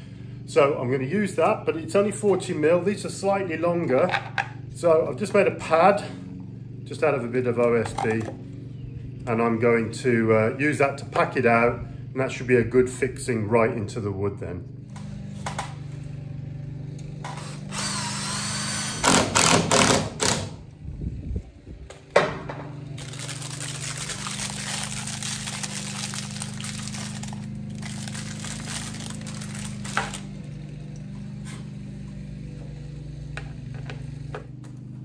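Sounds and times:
lawn mower engine humming: 0.0 - 9.9, 14.7 - 18.0, 21.4 - 35.0
drill click: 17.2 - 20.5
power drill driving screws: 17.2 - 20.6.

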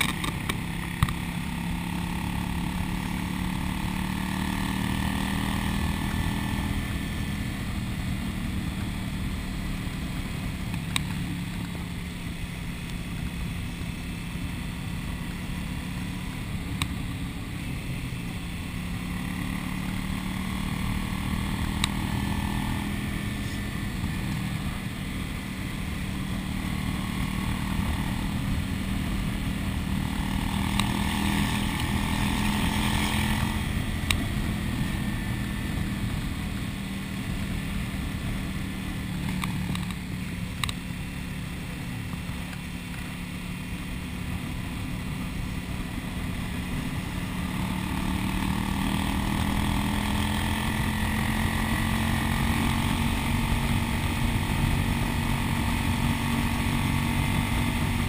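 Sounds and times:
motorcycle engine running: 0.0 - 58.0
wind and road noise: 0.0 - 58.0
faint sharp ticks: 39.2 - 40.0.

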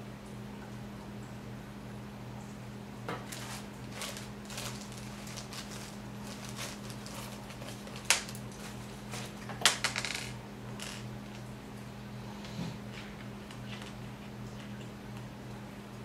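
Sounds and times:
plastic bag crinkling: 3.2 - 11.1.

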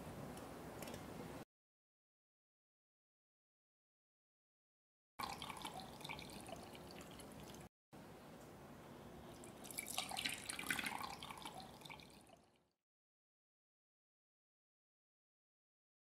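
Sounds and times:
liquid pouring into pot: 5.2 - 7.7, 9.4 - 12.7.

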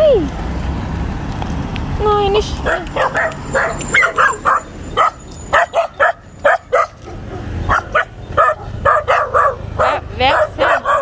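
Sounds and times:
puppies barking and yipping: 2.4 - 11.0.

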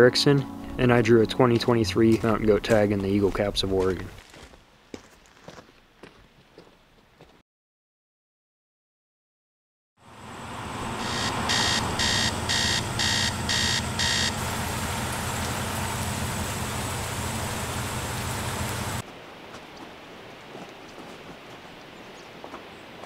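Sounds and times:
heavy rain falling: 10.8 - 19.0
quick electronic beeps: 11.0 - 14.3.

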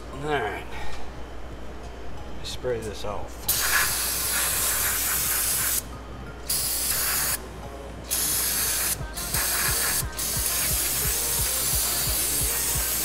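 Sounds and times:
aerosol can spraying: 3.5 - 5.9, 6.5 - 7.4, 8.1 - 13.0.

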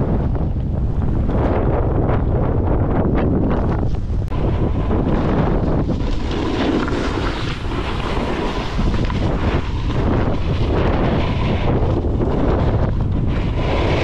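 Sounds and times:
wind buffeting microphone: 0.0 - 14.0
skis carving over snow: 3.4 - 14.0.

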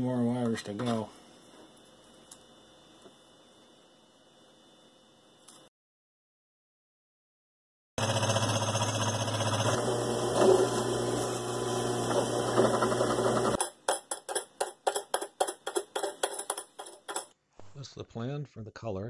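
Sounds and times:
drill press motor whirring: 8.0 - 13.6.

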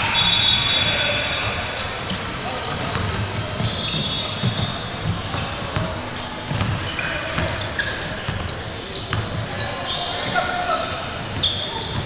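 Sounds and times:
players' voices: 0.0 - 12.0
sneaker squeaks: 0.0 - 12.0
basketball bouncing on court: 1.9 - 9.6.

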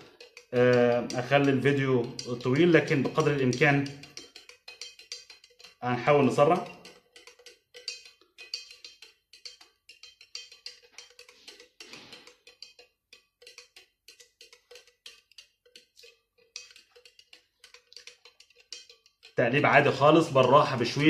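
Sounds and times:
stirrer clinking against glass beaker: 0.0 - 21.0.

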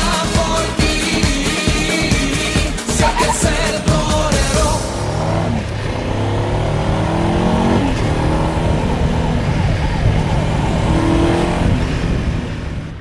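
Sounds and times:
car engine revving: 2.9 - 13.0.

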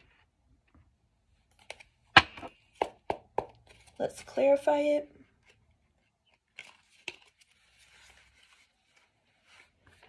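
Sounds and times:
cards rustling and tapping: 1.4 - 4.5, 5.3 - 10.0.

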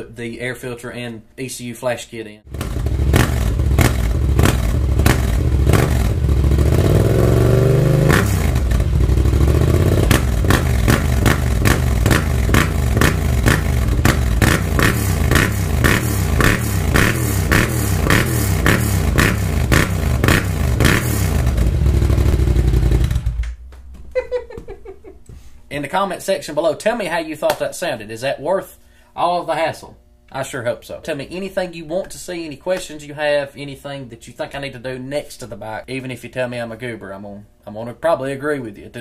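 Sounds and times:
motorcycle engine revving: 2.5 - 23.6
quick throttle blips: 2.5 - 23.6.

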